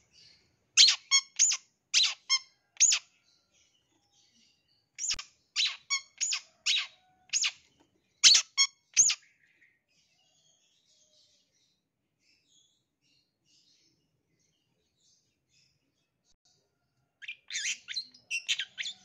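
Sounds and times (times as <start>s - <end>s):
bird giving harsh squeaky calls: 0.8s - 3.0s, 8.2s - 9.2s.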